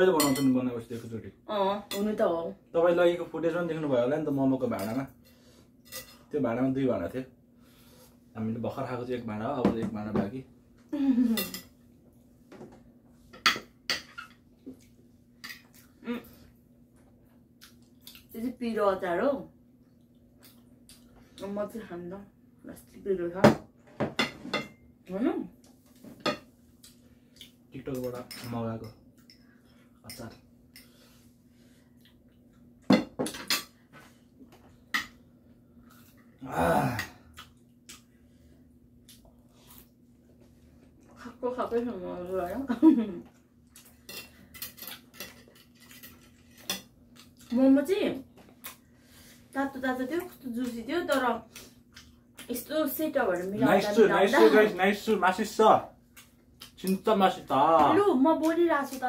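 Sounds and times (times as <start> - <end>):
tableware clinking: 0.2 - 0.6.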